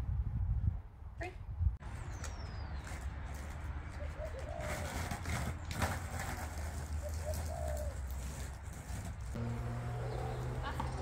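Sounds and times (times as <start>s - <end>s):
skateboard wheels rolling on concrete: 1.9s - 11.0s
dove cooing: 7.0s - 8.0s.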